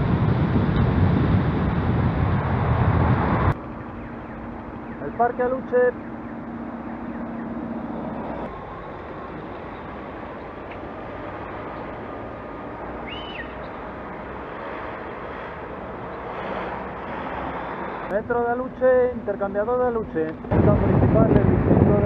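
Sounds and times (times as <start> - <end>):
wind noise: 0.0 - 4.8, 20.0 - 22.0
motor traffic: 0.0 - 22.0
road noise: 0.0 - 22.0.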